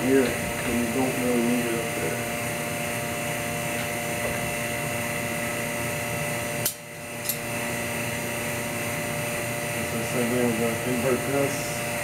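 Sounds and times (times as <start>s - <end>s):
vacuum pump whining hum: 0.0s - 12.0s.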